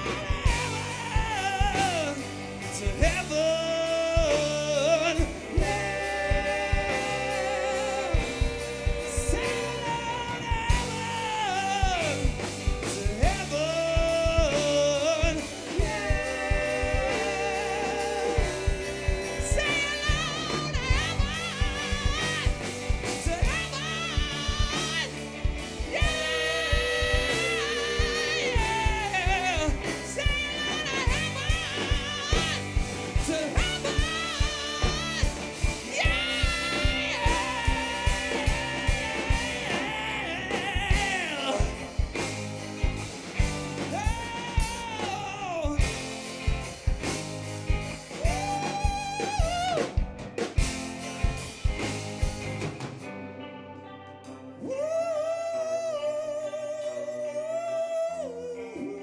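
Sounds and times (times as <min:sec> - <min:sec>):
drum kit: 0:00.0 - 0:53.5
bass guitar: 0:00.0 - 0:59.0
electric guitars: 0:00.0 - 0:59.0.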